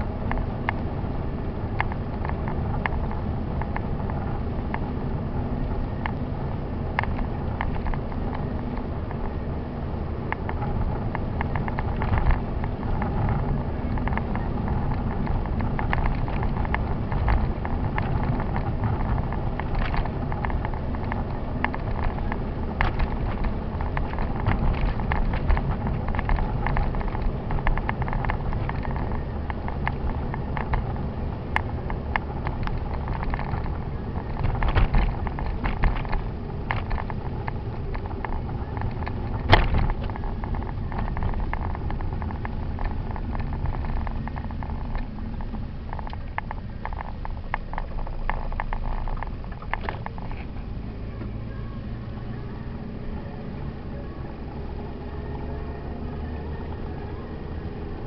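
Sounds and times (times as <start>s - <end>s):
engine and road rumble: 0.0s - 58.0s
clicks and rattles: 10.3s - 51.4s.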